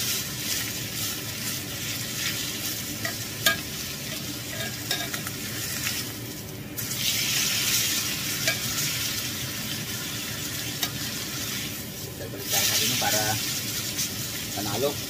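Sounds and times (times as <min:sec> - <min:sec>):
meat sizzling in a skillet: 0:00.0 - 0:15.0
metal tongs clicking on pan: 0:04.6 - 0:05.3.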